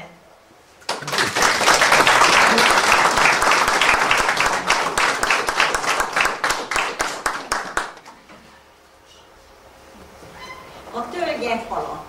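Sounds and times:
audience applauding: 0.8 - 8.1.

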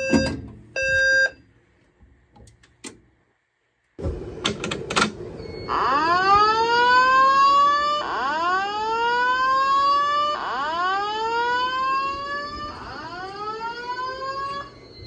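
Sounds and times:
rising whoop alarm tone: 5.7 - 15.0.

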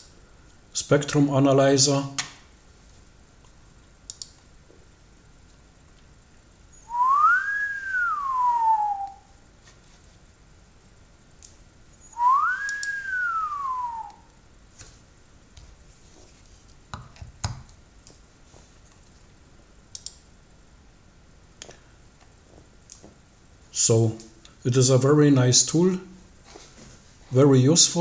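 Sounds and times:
light clicks: 4.1 - 4.4, 19.9 - 20.2
person whistling a gliding note: 6.8 - 9.3, 12.1 - 14.3.

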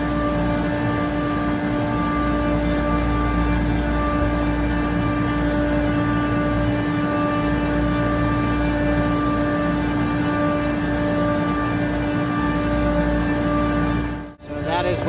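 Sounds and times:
chiller mechanical hum: 0.0 - 15.0.

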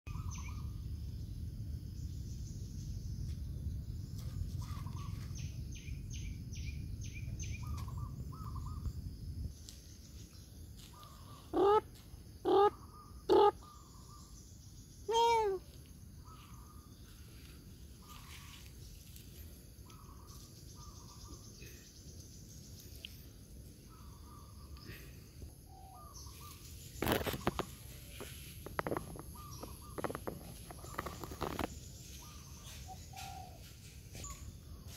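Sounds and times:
birds calling: 0.1 - 0.8, 4.2 - 9.0, 10.1 - 15.6, 16.2 - 34.9.

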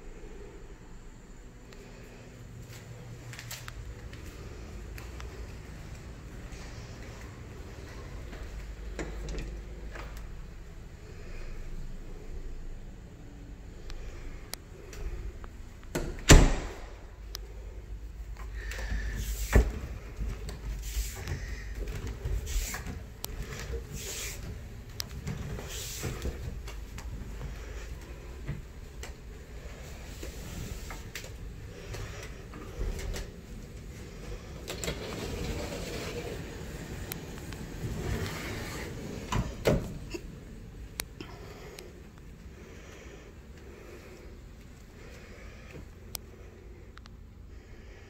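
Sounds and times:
door pulled open: 15.9 - 17.0
footsteps: 18.6 - 34.1.

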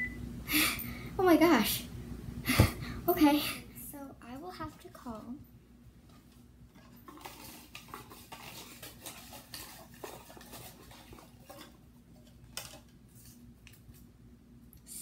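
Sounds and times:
paper slips rustling in cup: 6.8 - 13.9.

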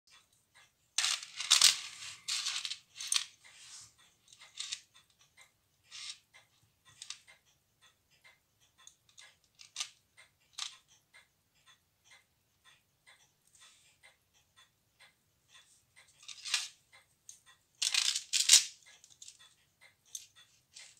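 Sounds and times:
pocket watch ticking: 2.6 - 17.6.

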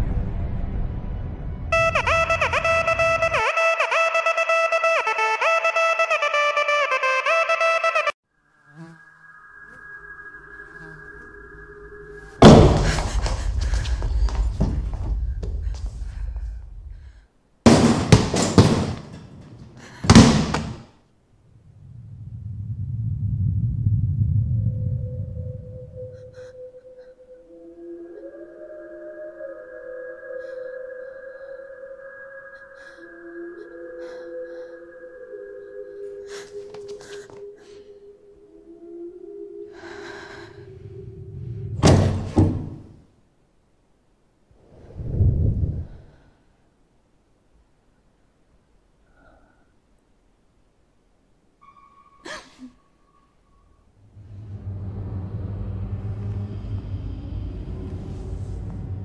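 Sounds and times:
deep rumbling boom: 0.0 - 1.7
eerie drone music: 9.0 - 17.0, 22.3 - 42.1, 51.6 - 59.0
stall door slamming: 12.4 - 13.4, 17.7 - 20.9, 41.8 - 42.9
loud bangs: 17.7 - 20.8
low rumbling drone: 21.5 - 28.3, 38.6 - 42.0, 53.5 - 59.0.

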